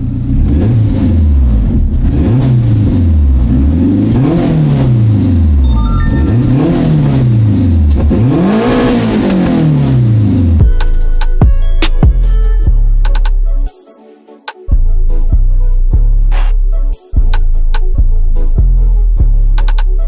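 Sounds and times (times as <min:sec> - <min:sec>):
car engine revving: 0:00.0 - 0:10.6.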